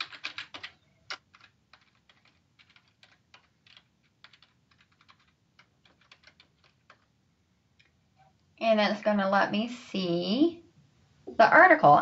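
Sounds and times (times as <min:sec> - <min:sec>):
faint keyboard typing: 0:00.0 - 0:08.4.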